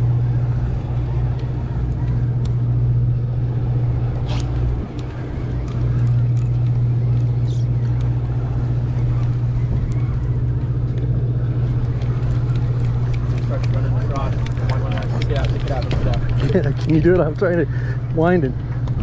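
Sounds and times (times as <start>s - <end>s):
boat engine humming: 0.0s - 19.0s.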